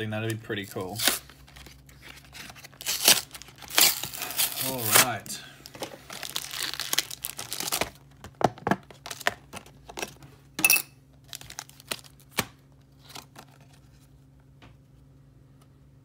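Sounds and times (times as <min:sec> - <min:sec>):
plastic packaging crinkling: 0:00.6 - 0:10.2, 0:11.2 - 0:12.4.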